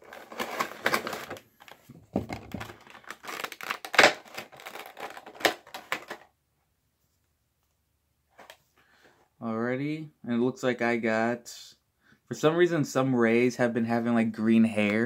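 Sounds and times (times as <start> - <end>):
box packaging crinkling: 0.0 - 6.3.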